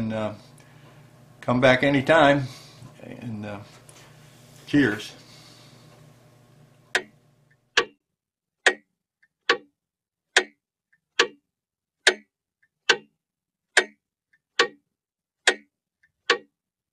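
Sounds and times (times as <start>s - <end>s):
clock ticking: 6.9s - 8.0s, 8.6s - 9.7s, 10.3s - 11.4s, 12.0s - 14.8s, 15.4s - 16.5s.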